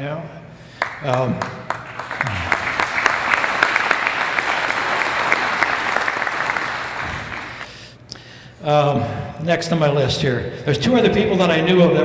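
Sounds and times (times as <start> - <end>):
audience applauding: 0.8 - 7.7.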